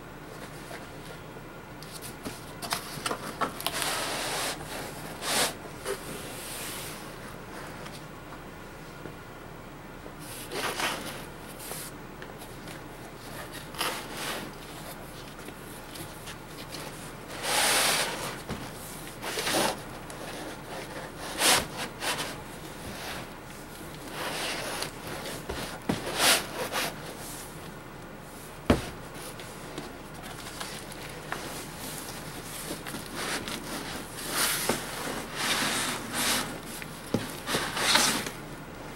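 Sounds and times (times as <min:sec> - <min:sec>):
cardboard scraping and rubbing: 0:16.0 - 0:18.5, 0:19.2 - 0:23.3, 0:24.0 - 0:27.4, 0:28.7 - 0:38.4.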